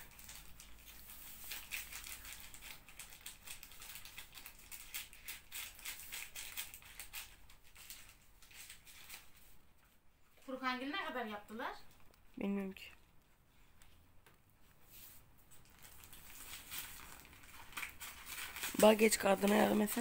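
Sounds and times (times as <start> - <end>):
packaging crinkling: 0.0 - 9.5, 15.5 - 20.0.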